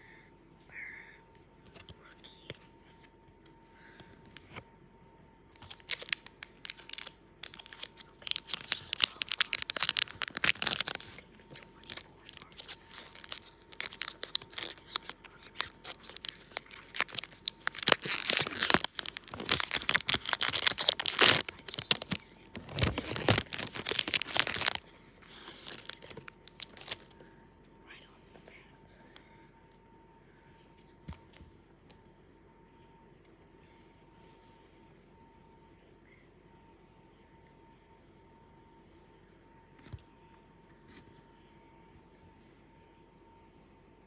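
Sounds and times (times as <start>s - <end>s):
card pack wrapper tearing: 5.6s - 27.1s.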